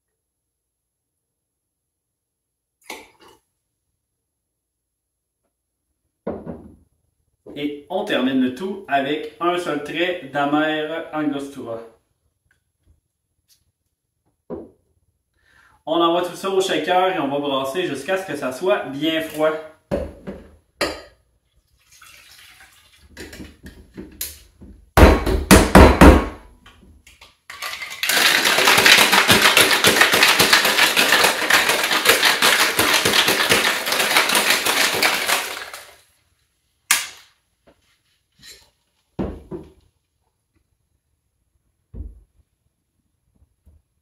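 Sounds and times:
liquid pouring into tin: 0:21.6 - 0:23.2
ice rattling in metal shaker: 0:27.5 - 0:36.0.

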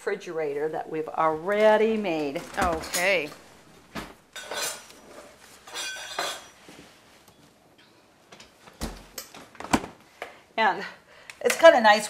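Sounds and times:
dishes and utensils clattering: 0:02.4 - 0:03.4, 0:04.3 - 0:06.8.

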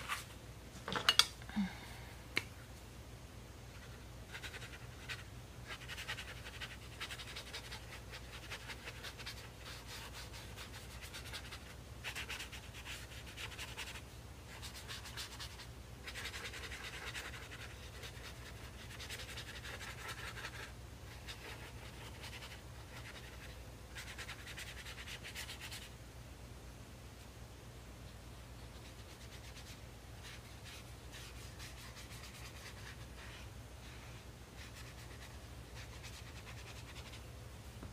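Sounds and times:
low steady hum: 0:00.0 - 0:37.9
brush scrubbing on paper: 0:28.6 - 0:37.2.

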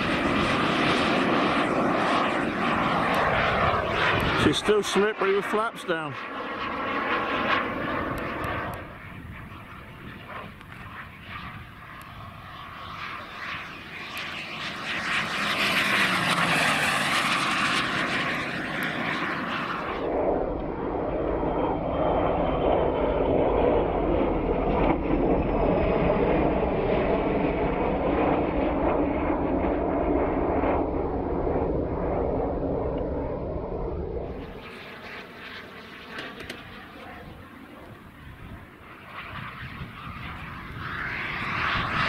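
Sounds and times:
jet turbine hiss and whine: 0:00.0 - 0:42.0.

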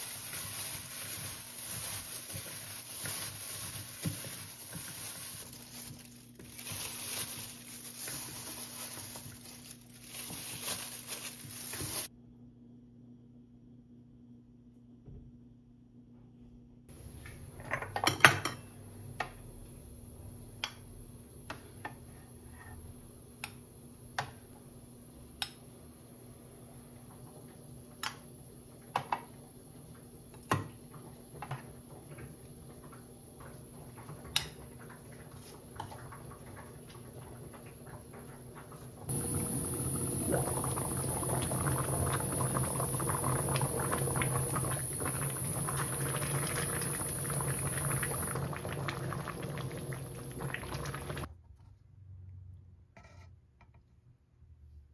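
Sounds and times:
stew bubbling in a pot: 0:30.9 - 0:51.3.

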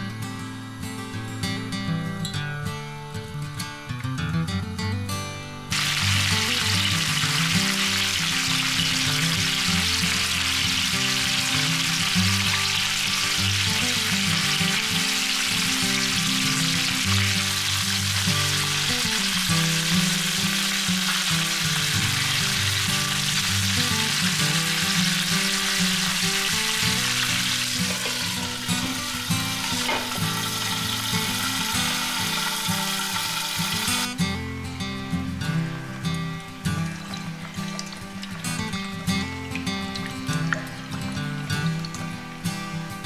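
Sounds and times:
soft background music: 0:05.5 - 0:43.0
meat sizzling in a frying pan: 0:05.7 - 0:34.1
glass lid knocking on pan: 0:29.8 - 0:30.5.

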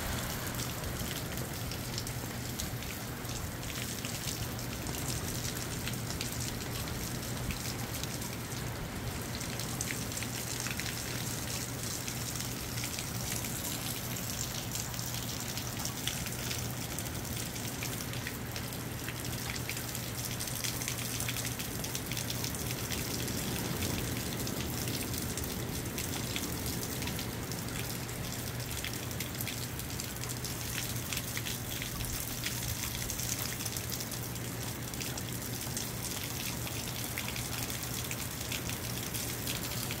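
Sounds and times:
low hum: 0:00.0 - 0:02.6
rain pattering on surfaces: 0:00.0 - 0:40.0.

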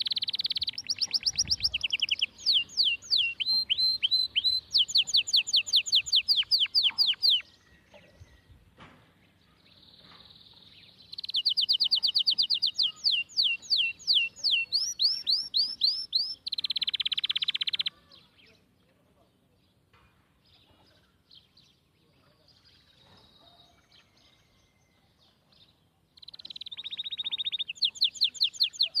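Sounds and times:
songbird whistling: 0:00.0 - 0:07.6, 0:11.1 - 0:17.9, 0:26.2 - 0:29.0
buzzy bird trill: 0:00.0 - 0:08.5, 0:09.6 - 0:18.4, 0:26.2 - 0:29.0.

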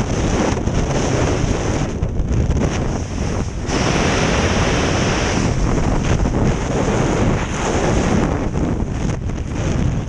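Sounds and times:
wind rushing over microphone: 0:00.0 - 0:10.0.

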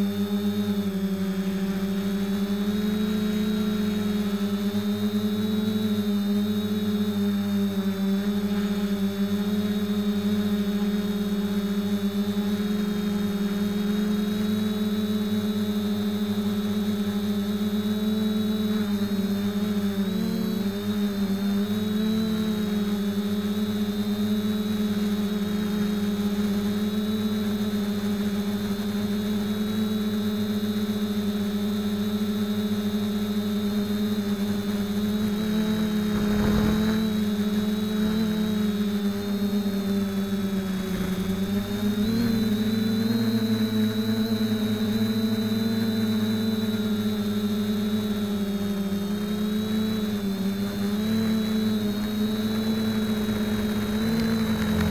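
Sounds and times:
drone motors whining: 0:00.0 - 0:54.9
brief rush of noise: 0:36.1 - 0:37.0.

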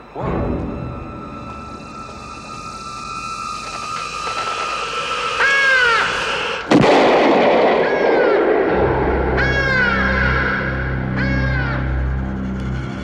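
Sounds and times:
high falling cries: 0:00.0 - 0:13.0
sharp bang: 0:06.6 - 0:09.9.

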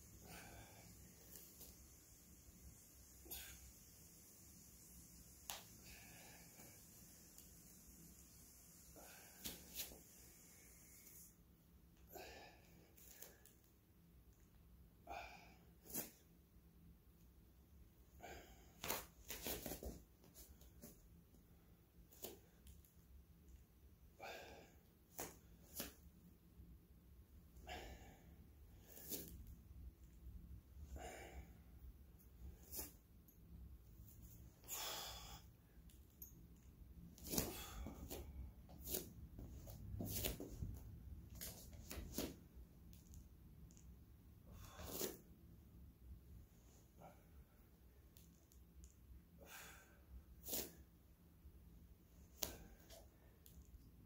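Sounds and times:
person breathing forcefully: 0:34.6 - 0:35.6, 0:37.3 - 0:40.4.

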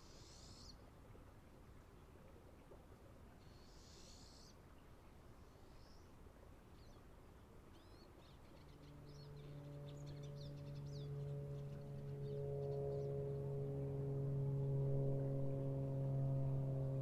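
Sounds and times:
birds chirping: 0:07.8 - 0:13.2
low droning musical tone: 0:08.9 - 0:17.0.

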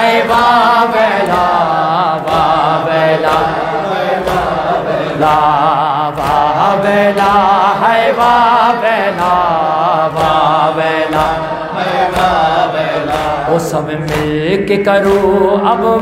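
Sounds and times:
congregation voices joining: 0:00.0 - 0:16.0
steady beat of strikes: 0:00.0 - 0:16.0
man chanting a lament: 0:04.5 - 0:16.0.

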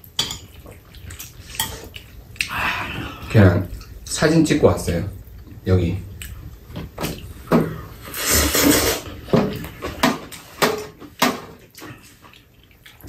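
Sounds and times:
slurping noodles: 0:07.9 - 0:09.1.

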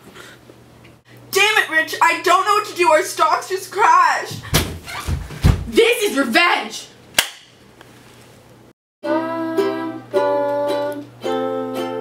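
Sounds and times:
ukulele strummed: 0:09.0 - 0:12.0.

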